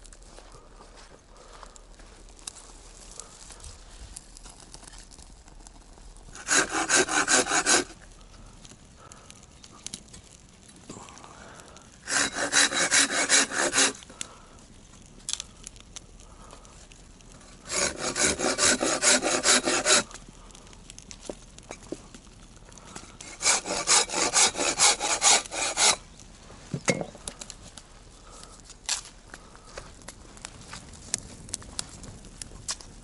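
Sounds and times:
hand saw cutting wood: 0:06.4 - 0:08.0, 0:12.1 - 0:14.0, 0:17.7 - 0:20.1, 0:23.2 - 0:26.0.

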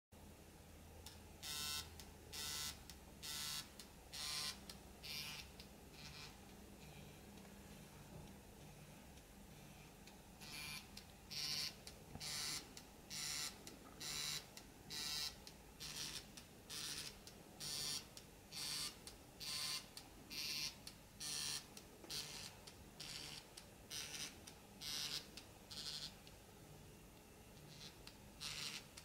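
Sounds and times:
phone buzzing rattle: 0:01.4 - 0:06.4, 0:10.4 - 0:26.2, 0:27.6 - 0:29.0.

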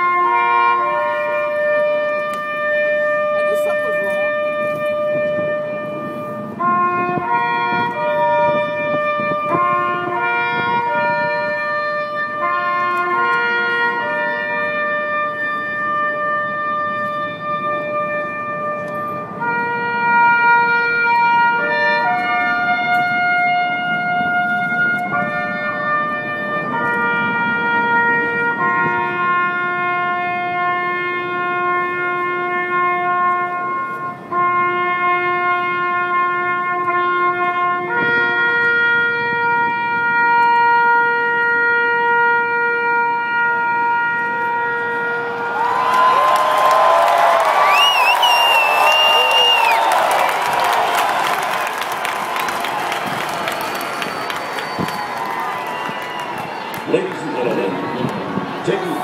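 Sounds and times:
brass instrument slow melody: 0:00.0 - 0:59.0
low crowd hum: 0:43.0 - 0:59.0.

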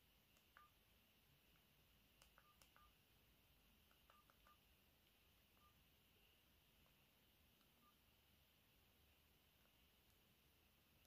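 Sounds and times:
phone keypad clicks: 0:02.2 - 0:03.0, 0:03.9 - 0:04.6.

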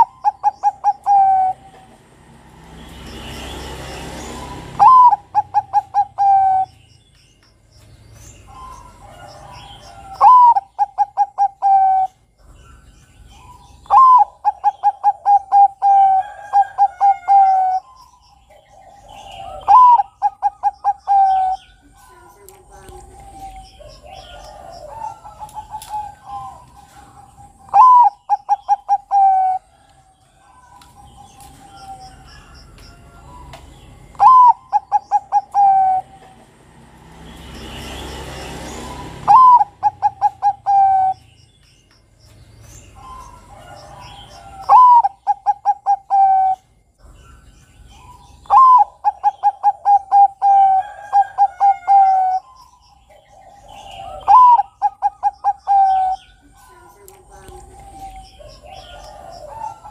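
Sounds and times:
dove cooing song: 0:00.0 - 0:07.1, 0:08.2 - 0:41.8, 0:42.6 - 0:59.9
small high bird chirps: 0:02.9 - 0:36.4.

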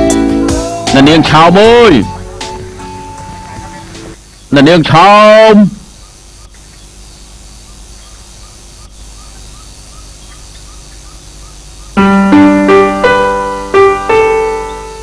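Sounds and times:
low steady background: 0:00.0 - 0:15.0
slow piano melody: 0:12.0 - 0:15.0.

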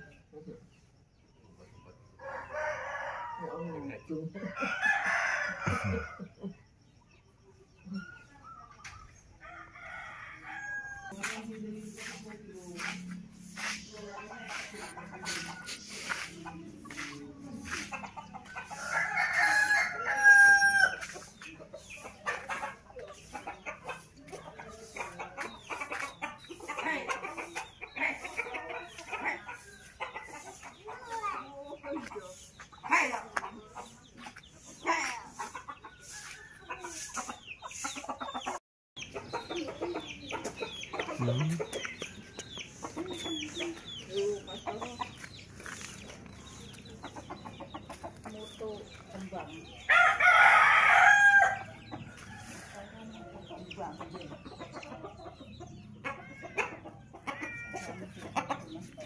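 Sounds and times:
rooster crowing: 0:04.5 - 0:06.3, 0:18.7 - 0:21.0, 0:49.9 - 0:51.6.

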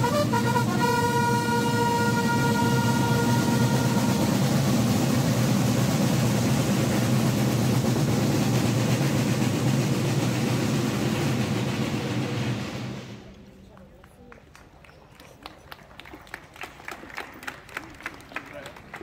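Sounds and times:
side drums rolling: 0:00.0 - 0:13.6.

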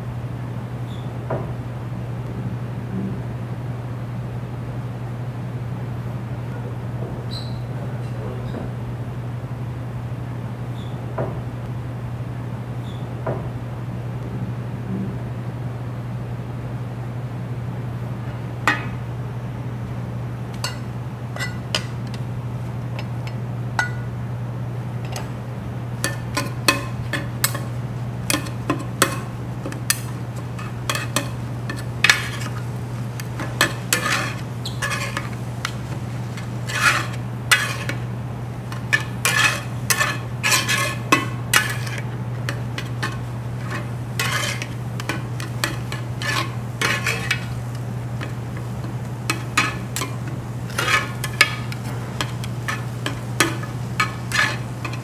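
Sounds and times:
metal spatulas scraping griddle: 0:20.6 - 0:22.2, 0:25.0 - 0:25.4, 0:26.0 - 0:55.0.

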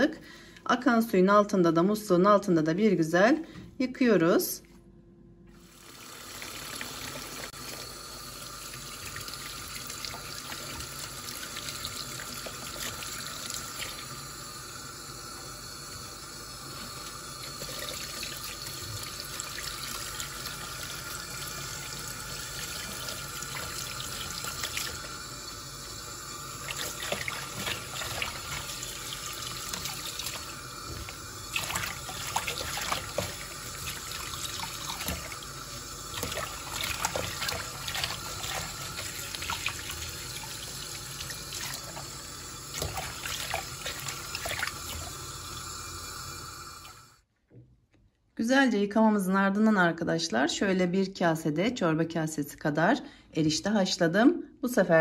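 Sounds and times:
tap water splashing: 0:26.6 - 0:35.5, 0:36.1 - 0:42.1, 0:42.7 - 0:45.3.

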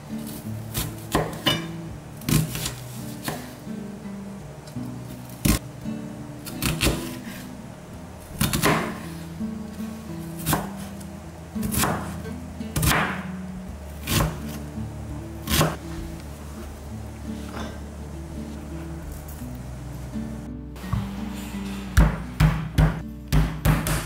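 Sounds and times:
acoustic guitar music: 0:00.0 - 0:24.0
knife chopping on cutting board: 0:08.4 - 0:09.1, 0:11.7 - 0:12.2, 0:12.8 - 0:13.2, 0:15.4 - 0:15.8, 0:22.0 - 0:24.0.

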